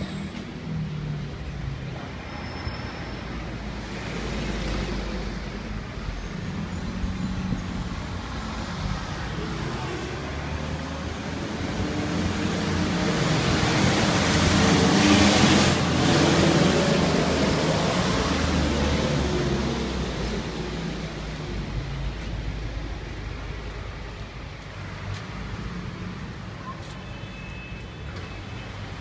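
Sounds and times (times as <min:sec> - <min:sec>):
vehicle passing by: 0:08.4 - 0:22.9.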